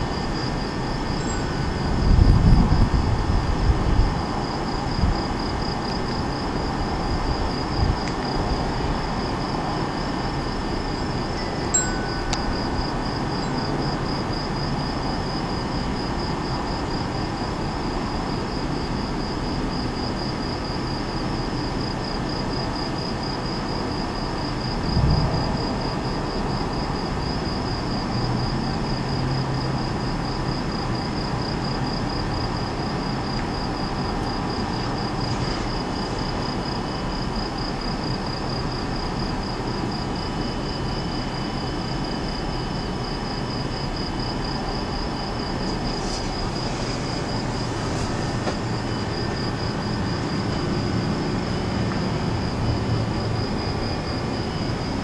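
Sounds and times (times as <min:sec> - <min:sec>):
crickets chirping: 0:00.0 - 0:55.0
low background rumble: 0:24.6 - 0:27.8
distant thunder: 0:24.8 - 0:27.2.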